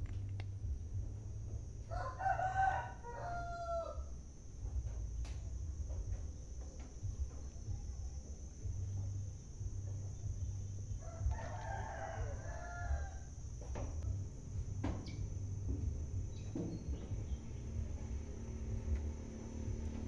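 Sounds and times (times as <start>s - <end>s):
steady low hum: 0.0s - 20.0s
rooster crowing: 1.8s - 4.2s, 10.9s - 14.1s.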